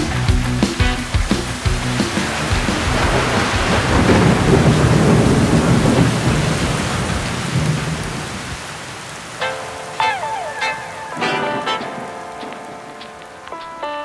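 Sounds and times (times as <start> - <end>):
heavy rain: 0.0 - 13.9
thunder rumbling: 1.4 - 9.0.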